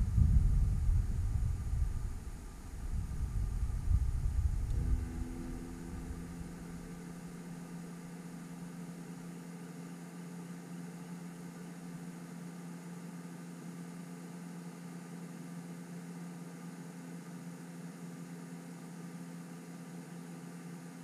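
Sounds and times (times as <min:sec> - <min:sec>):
deep rumble: 0:00.0 - 0:07.3
low motor hum: 0:00.0 - 0:21.0.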